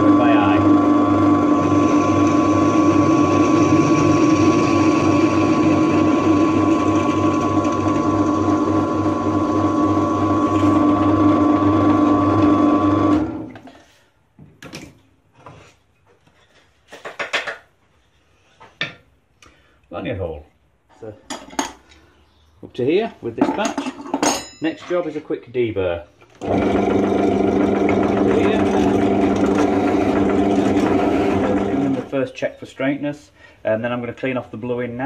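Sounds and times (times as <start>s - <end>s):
drill press running: 0.0s - 13.6s, 26.4s - 32.2s.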